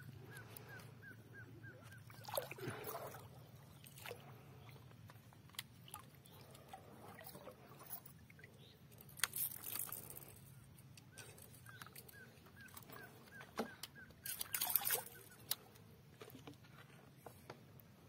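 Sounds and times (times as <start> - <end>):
bird calling: 0.0 - 4.8, 11.1 - 15.7
fish splashing in shallow water: 1.7 - 4.8, 12.1 - 15.6.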